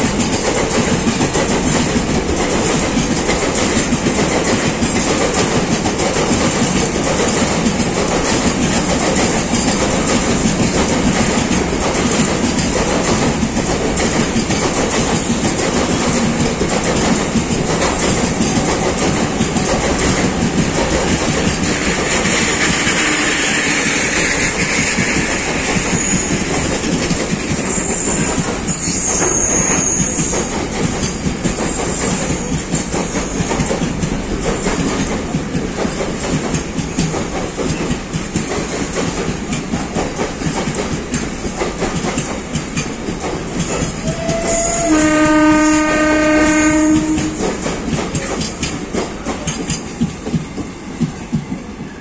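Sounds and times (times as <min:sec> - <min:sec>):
train wheels clattering over rail joints: 0:00.0 - 0:52.0
train horn: 0:22.6 - 0:24.1, 0:44.0 - 0:47.7.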